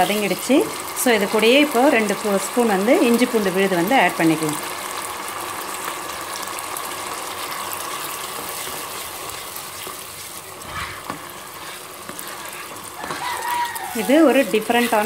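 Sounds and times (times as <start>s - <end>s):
paste sizzling in hot oil: 0.0s - 15.0s
ladle scraping: 10.2s - 15.0s.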